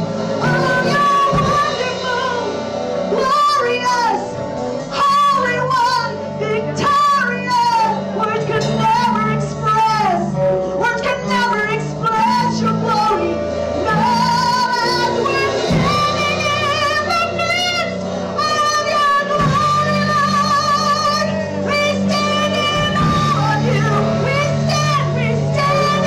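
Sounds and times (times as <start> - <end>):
band playing sustained low notes: 0.0 - 26.0
women singing with vibrato: 0.0 - 26.0.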